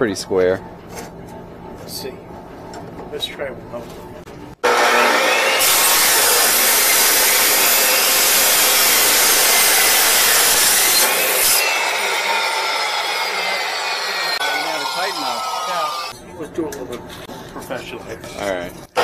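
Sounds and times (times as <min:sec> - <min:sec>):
saw blade winding down whine: 0:04.6 - 0:16.1
saw cutting through steel: 0:04.6 - 0:16.2.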